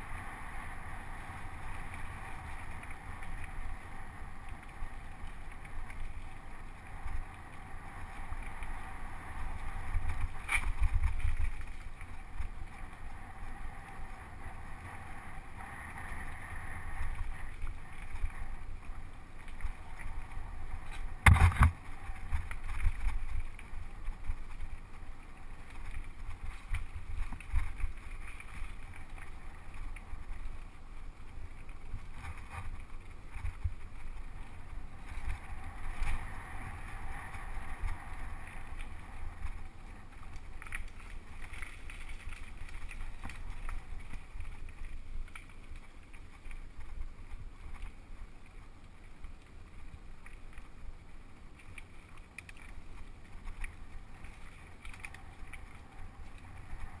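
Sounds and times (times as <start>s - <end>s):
bike tyres rolling over dirt: 0.0s - 57.0s
mountain bike rumbling and rattling: 0.0s - 57.0s
bike knocking over bumps: 21.2s - 21.8s.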